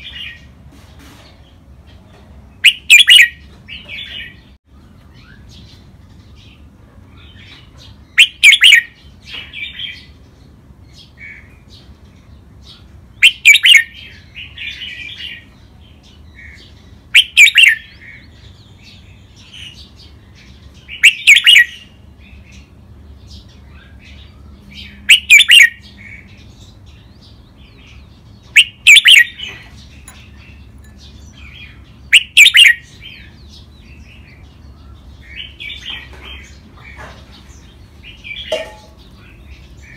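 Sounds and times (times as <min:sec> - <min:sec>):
bird singing song phrases: 0:00.0 - 0:39.9
bird chattering: 0:02.6 - 0:04.4, 0:07.8 - 0:09.0, 0:13.2 - 0:15.4, 0:17.1 - 0:18.0, 0:20.9 - 0:22.0, 0:25.1 - 0:25.9, 0:28.4 - 0:33.7.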